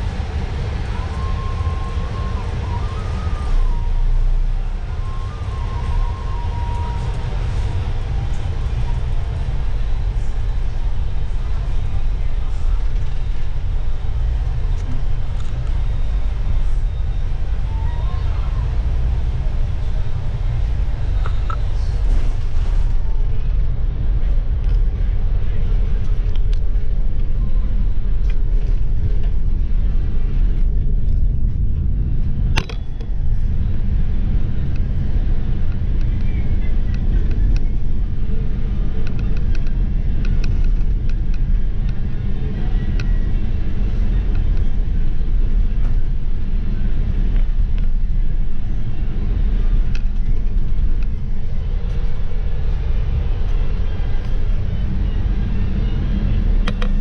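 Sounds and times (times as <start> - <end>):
bus engine and road rumble: 0.0 - 57.0.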